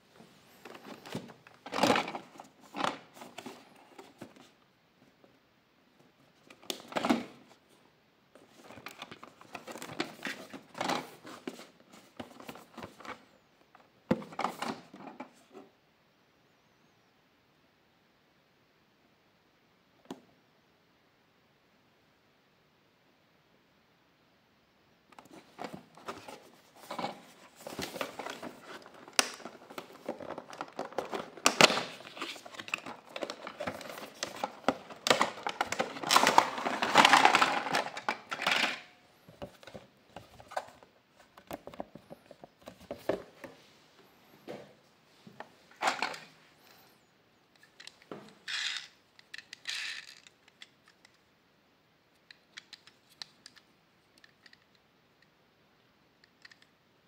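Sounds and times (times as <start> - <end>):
plastic packaging crinkling: 25.3 - 38.4.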